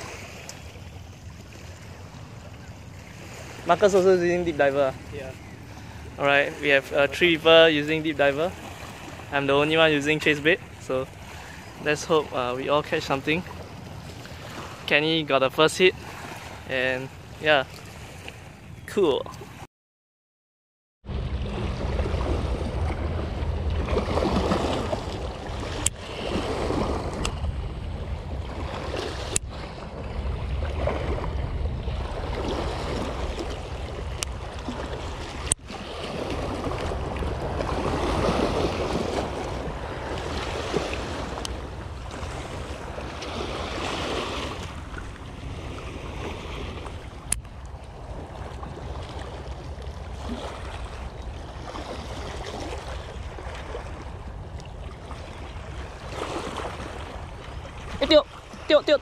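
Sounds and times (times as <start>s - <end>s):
waves washing over rocks: 0.0s - 0.8s, 21.1s - 59.0s
wind rumbling on microphone: 21.0s - 59.0s.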